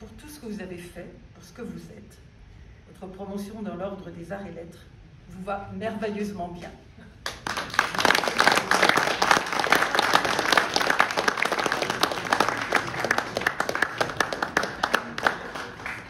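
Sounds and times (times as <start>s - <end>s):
crowd applauding: 7.2s - 16.0s.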